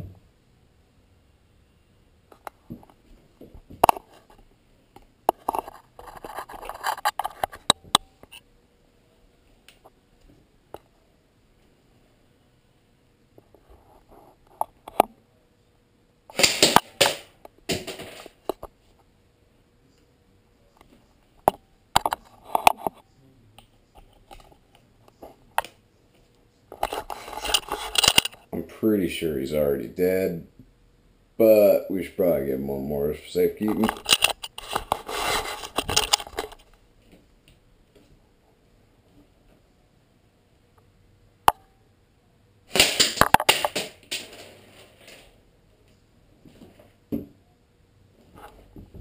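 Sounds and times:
rustling: 0:33.6 - 0:37.3.

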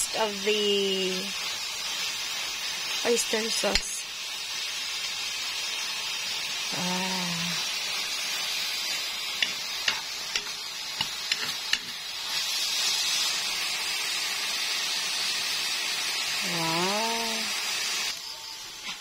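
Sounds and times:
greens sizzling in a wok: 0:00.0 - 0:19.0
spatula scraping a wok: 0:08.3 - 0:13.2.

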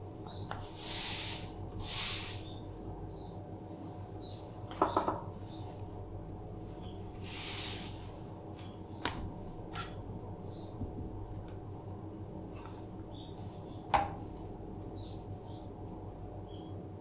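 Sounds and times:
steady low hum: 0:00.0 - 0:17.0
paper towel rustling: 0:06.6 - 0:08.8.

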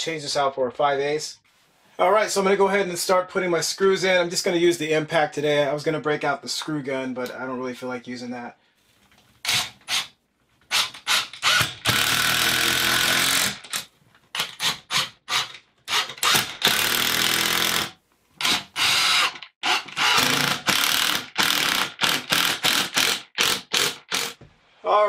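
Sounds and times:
impact driver driving screws: 0:09.4 - 0:10.1, 0:10.7 - 0:24.4.

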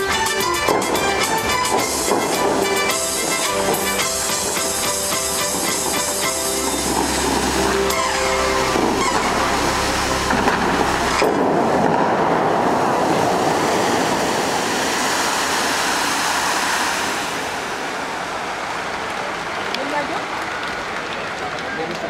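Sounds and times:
show music: 0:00.0 - 0:12.0
fountain water splashing: 0:00.0 - 0:22.0.

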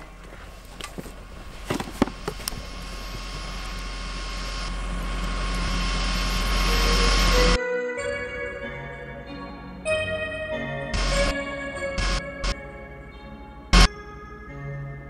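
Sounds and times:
rushing sound-design riser: 0:02.2 - 0:07.6, 0:10.9 - 0:12.6.

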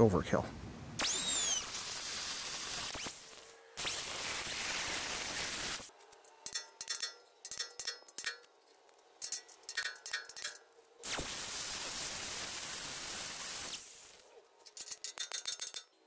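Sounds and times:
hammer striking metal punch: 0:06.5 - 0:08.5.

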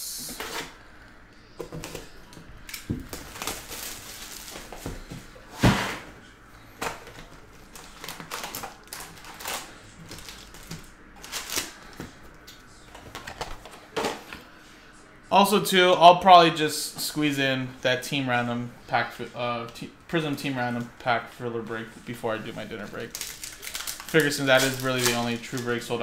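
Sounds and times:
foil packs rustling and clattering: 0:02.7 - 0:05.8, 0:06.7 - 0:12.2, 0:22.5 - 0:26.0.

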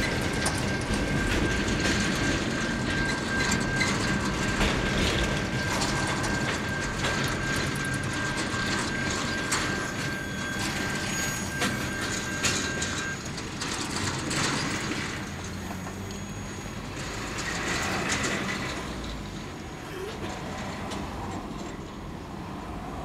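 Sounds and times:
train wagons rolling on rails: 0:00.0 - 0:23.0
thin high whine: 0:07.4 - 0:13.3.

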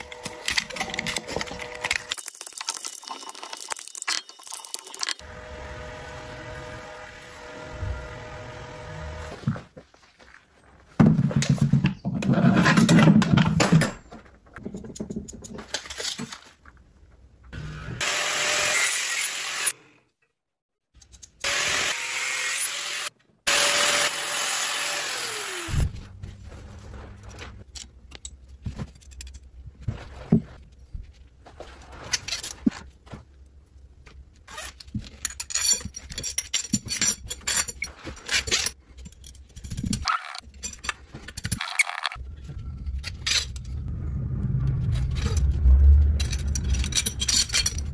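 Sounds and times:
power tool cutting metal rod: 0:17.6 - 0:19.8, 0:21.4 - 0:25.8
metal nuts clicking: 0:46.2 - 0:47.9.

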